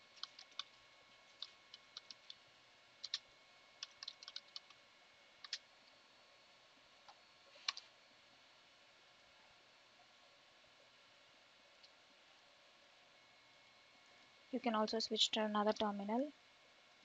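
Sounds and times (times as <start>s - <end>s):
computer keyboard typing: 0.1s - 2.4s, 3.0s - 4.8s, 5.4s - 5.6s, 7.6s - 7.8s.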